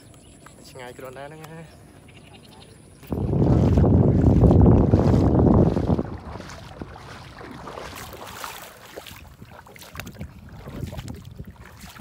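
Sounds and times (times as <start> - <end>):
wind buffeting microphone: 2.1 - 12.0
footsteps walking: 3.0 - 12.0.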